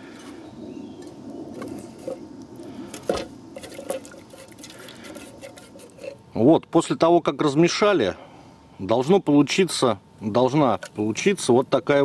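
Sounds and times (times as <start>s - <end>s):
slurry sloshing and scraping: 3.0s - 6.2s.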